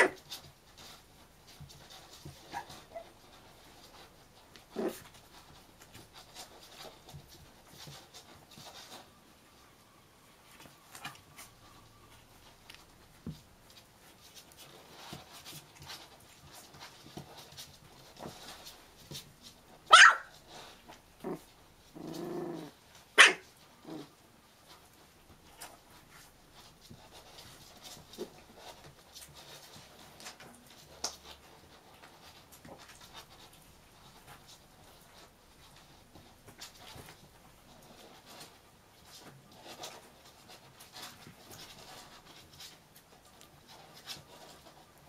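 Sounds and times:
puppies rustling: 0:00.0 - 0:45.0
puppies yipping: 0:02.3 - 0:03.2, 0:19.9 - 0:20.3, 0:23.2 - 0:23.5
puppy growl-like call: 0:04.7 - 0:05.1, 0:21.2 - 0:22.8, 0:23.8 - 0:24.2.

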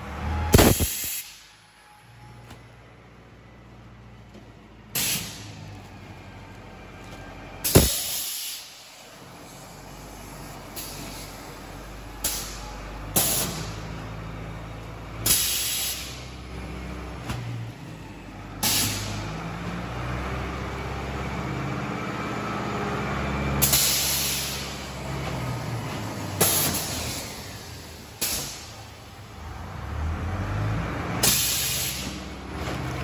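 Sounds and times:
sharp hisses of air: 0:00.5 - 0:01.6, 0:05.0 - 0:05.6, 0:07.7 - 0:11.4, 0:15.2 - 0:16.3, 0:23.6 - 0:24.8, 0:28.2 - 0:28.8, 0:31.2 - 0:32.2.

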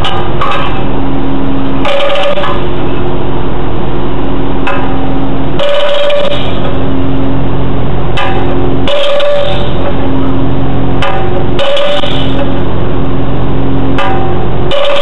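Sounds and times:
diesel engine drone: 0:00.0 - 0:15.0
hydraulic whine: 0:00.0 - 0:15.0.

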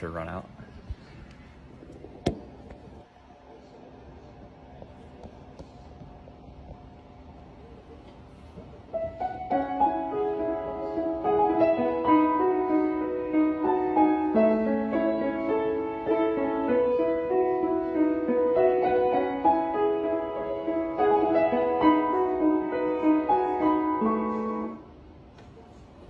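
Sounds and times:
piano melody over chords: 0:08.9 - 0:25.0.

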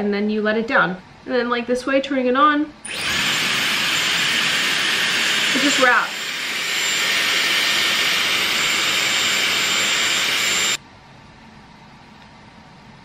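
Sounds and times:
hair styler blowing air: 0:02.9 - 0:10.8.

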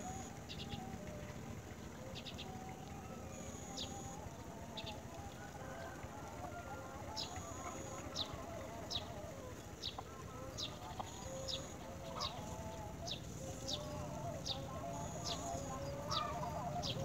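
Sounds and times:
low wavering warble: 0:07.1 - 0:17.0
nestlings begging chirps: 0:09.8 - 0:17.0.

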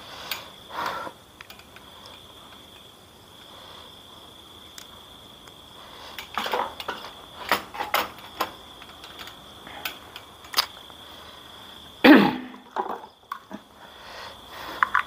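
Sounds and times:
crickets trilling: 0:00.0 - 0:15.0
plastic clicks: 0:06.2 - 0:10.8.

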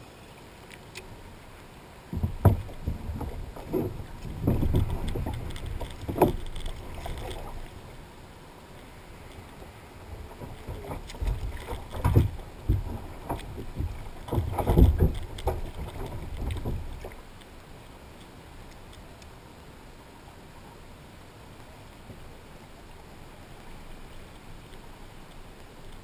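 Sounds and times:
water splashing: 0:00.6 - 0:19.2
knocks against plastic kayak hull: 0:02.1 - 0:05.4.

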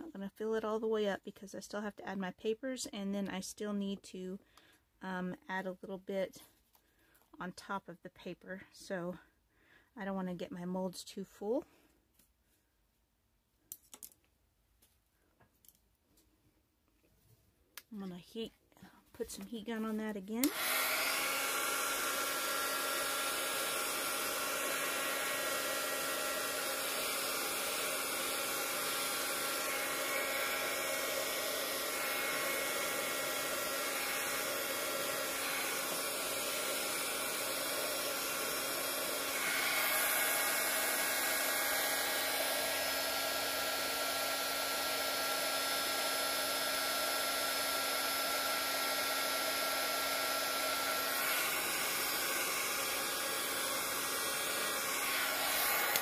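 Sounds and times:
heat gun blowing: 0:20.4 - 0:56.0.

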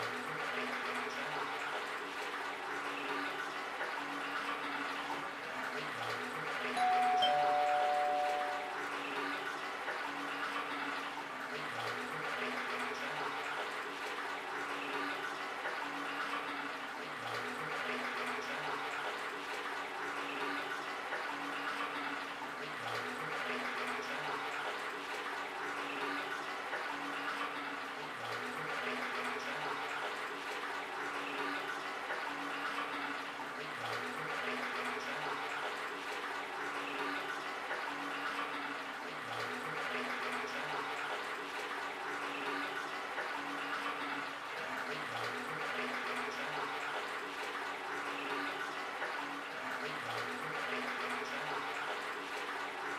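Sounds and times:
faint low two-note pulse: 0:06.8 - 0:08.8.

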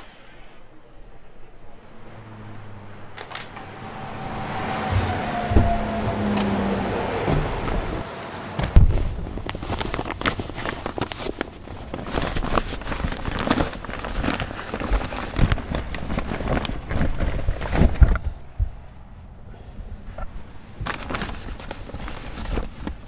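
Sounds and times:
loud thump: 0:04.8 - 0:06.6, 0:07.2 - 0:08.0
paper bag crinkling: 0:08.8 - 0:18.2, 0:20.8 - 0:23.0.

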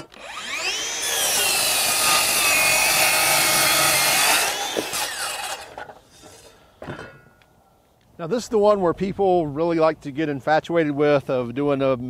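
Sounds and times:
saw motor winding down: 0:00.0 - 0:05.7
circular saw cutting wood: 0:00.0 - 0:06.5.

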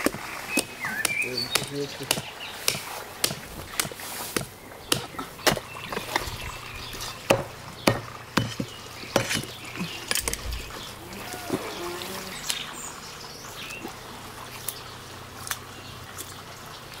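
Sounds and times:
knife chopping through fish: 0:00.0 - 0:06.2, 0:07.3 - 0:09.6.

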